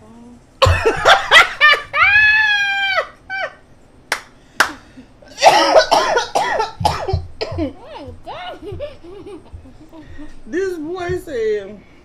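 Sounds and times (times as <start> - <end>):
excited voices: 1.5 - 3.6, 7.7 - 11.4.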